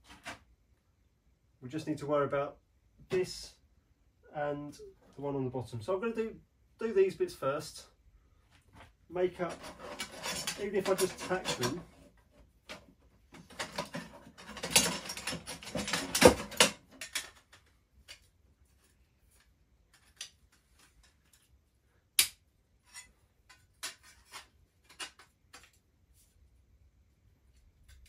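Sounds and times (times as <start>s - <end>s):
metal parts clattering on workbench: 9.4s - 11.9s, 13.4s - 18.2s, 22.9s - 25.8s.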